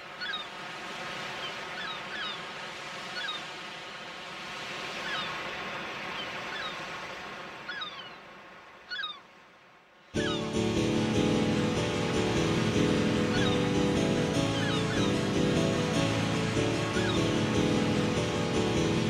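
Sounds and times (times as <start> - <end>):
surf washing: 0.0 - 19.0
seagulls crying: 0.1 - 0.6, 1.4 - 2.5, 3.1 - 3.5, 5.0 - 6.9, 7.6 - 8.3, 8.9 - 9.2, 10.2 - 19.0.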